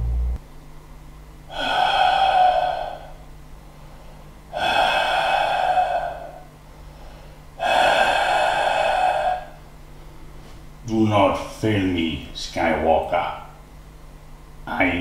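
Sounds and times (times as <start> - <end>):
man heavy mask breathing: 1.5 - 10.6.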